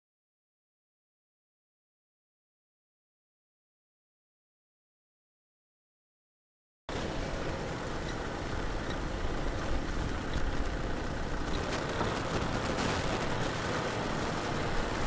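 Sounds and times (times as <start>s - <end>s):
tractor diesel engine under load: 6.9s - 15.0s.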